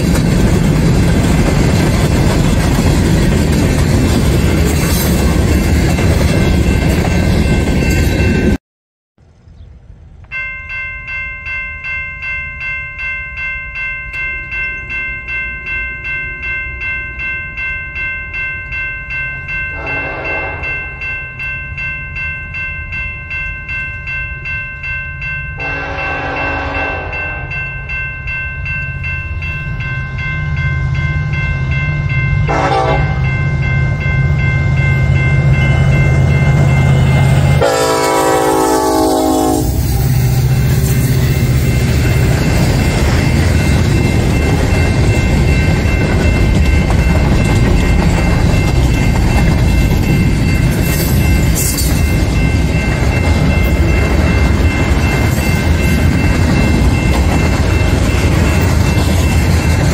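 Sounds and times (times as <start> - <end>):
crossing bell ringing: 0.0 - 8.6, 10.2 - 59.9
train horn blasts: 19.8 - 20.8, 25.6 - 27.5, 32.4 - 33.4, 37.0 - 40.6.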